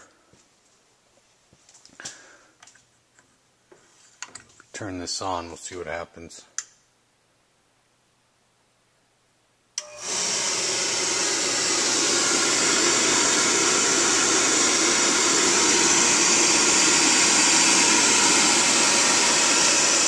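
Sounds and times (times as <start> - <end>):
click: 6.6 - 6.8
oil burner motor humming: 9.8 - 20.0.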